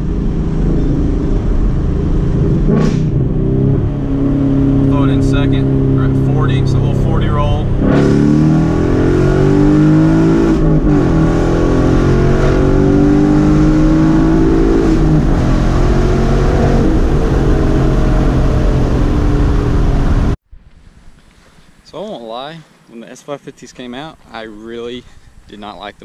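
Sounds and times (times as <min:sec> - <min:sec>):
car engine revving from inside cabin: 0:00.2 - 0:20.4.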